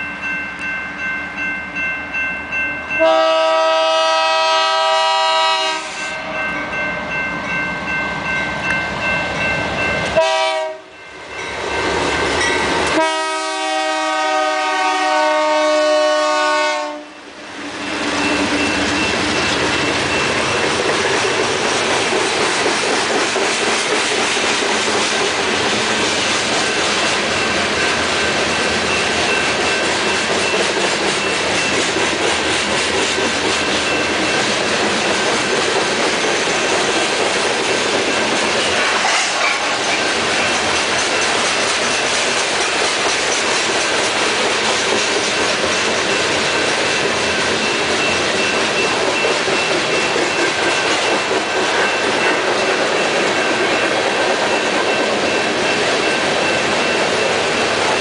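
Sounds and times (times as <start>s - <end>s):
train cars rumbling past: 0.0s - 58.0s
locomotive air horn: 3.0s - 6.4s, 10.2s - 11.0s, 13.0s - 17.2s
wheels clacking over rail joints: 17.6s - 58.0s.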